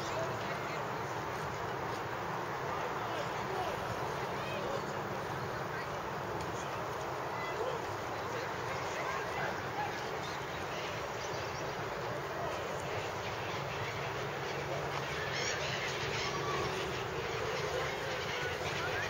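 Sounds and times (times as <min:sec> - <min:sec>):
outdoor noise: 0:00.0 - 0:19.0
faint duck calls: 0:12.4 - 0:19.0.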